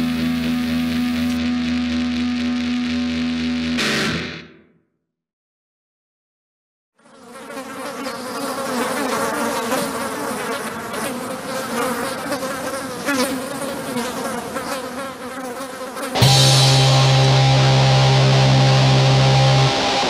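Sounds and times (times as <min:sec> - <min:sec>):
swarm of flies buzzing: 0:07.0 - 0:16.3.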